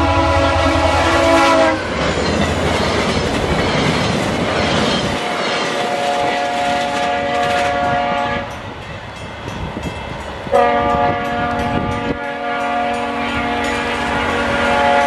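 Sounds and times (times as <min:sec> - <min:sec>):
train horn blast: 0:00.0 - 0:02.0, 0:05.2 - 0:08.6, 0:10.5 - 0:15.0
rail traffic rumble: 0:00.0 - 0:15.0.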